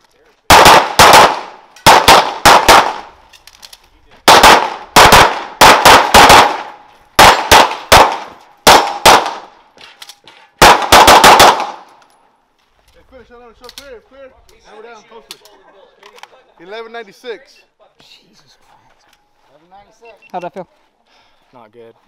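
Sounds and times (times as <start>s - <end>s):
pistol shots echoing: 0.5s - 3.2s, 4.3s - 9.6s, 10.6s - 11.9s.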